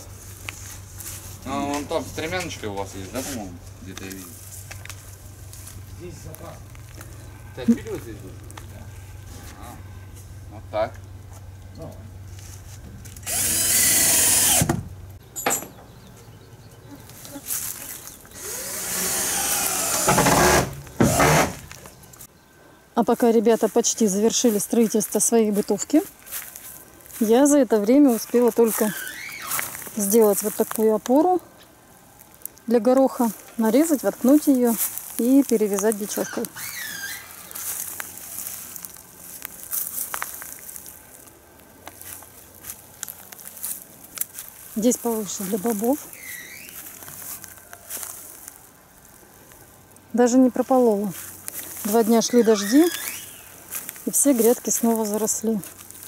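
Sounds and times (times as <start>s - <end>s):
power drill fastening wood panels: 13.2s - 14.9s, 18.4s - 21.7s.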